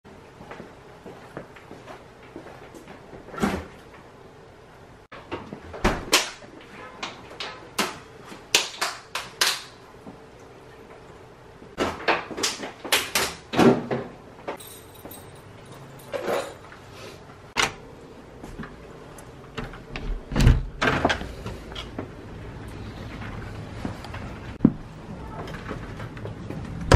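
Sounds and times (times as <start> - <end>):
kitchen items knocking and clattering: 11.8 - 16.7.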